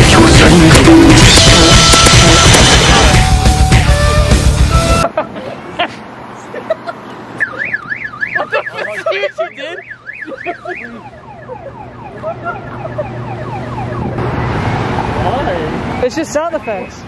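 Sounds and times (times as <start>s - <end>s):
car alarm: 7.4s - 14.2s.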